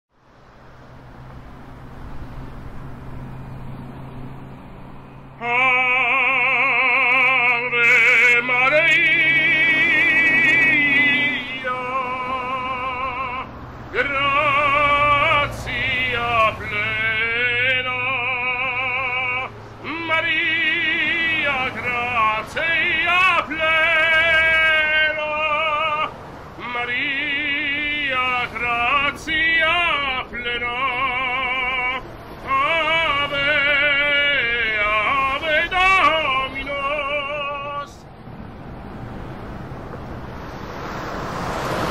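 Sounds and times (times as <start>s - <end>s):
man singing opera: 5.4s - 38.1s
singer breathing: 19.5s - 19.8s.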